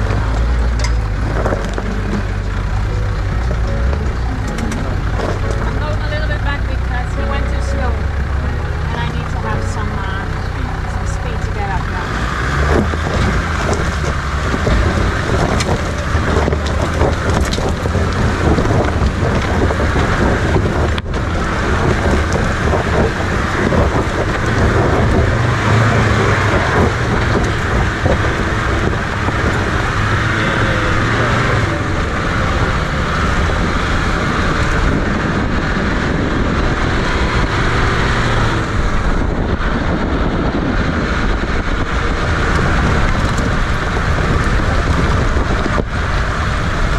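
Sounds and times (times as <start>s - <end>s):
jeep engine running: 0.0s - 46.9s
wind on microphone: 0.0s - 46.9s
tyres on loose stones: 12.6s - 30.2s.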